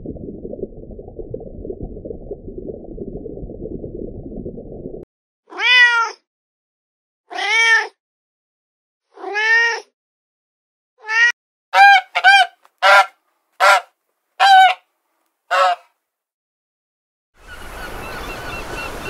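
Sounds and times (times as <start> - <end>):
kitten meowing: 5.5 - 6.2.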